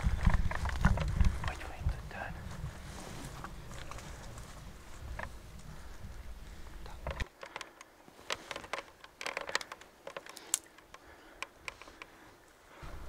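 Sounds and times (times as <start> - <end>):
dry brush crackling: 2.4 - 12.3.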